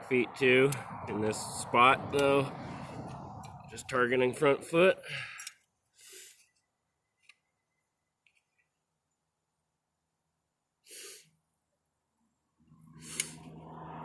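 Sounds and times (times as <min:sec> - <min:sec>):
soft puffs of air: 0:10.8 - 0:11.4.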